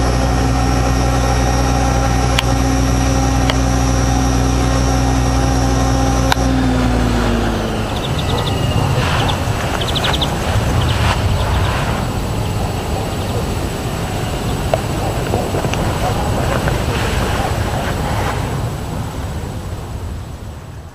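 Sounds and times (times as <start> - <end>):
rc helicopter motor and rotor: 0.0 - 20.4
low rumbling noise: 0.0 - 20.9
high chirps: 2.6 - 18.1.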